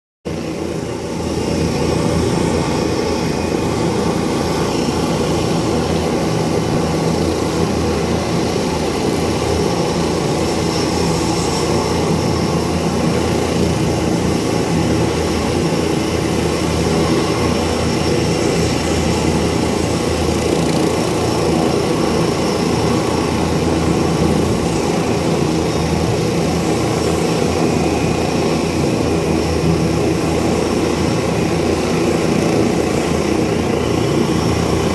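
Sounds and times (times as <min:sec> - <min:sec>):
helicopter engine and rotor: 0:00.3 - 0:34.9.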